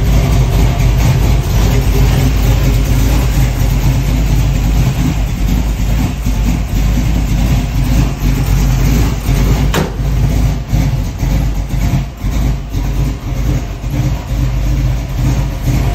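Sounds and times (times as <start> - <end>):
car engine idling: 0.0 - 15.9.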